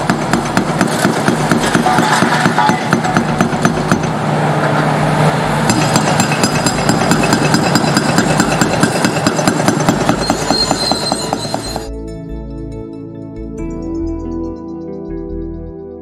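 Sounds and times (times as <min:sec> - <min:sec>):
hydraulic breaker hammering concrete: 0:00.0 - 0:04.2, 0:05.7 - 0:11.9
diesel engine running: 0:00.0 - 0:11.9.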